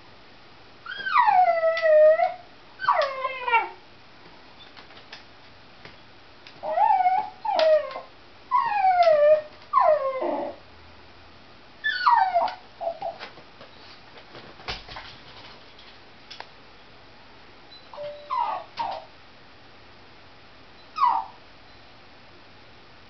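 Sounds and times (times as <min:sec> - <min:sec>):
dog whining: 0:00.8 - 0:03.8, 0:06.6 - 0:10.6, 0:11.8 - 0:13.2, 0:17.7 - 0:19.1, 0:20.8 - 0:21.4.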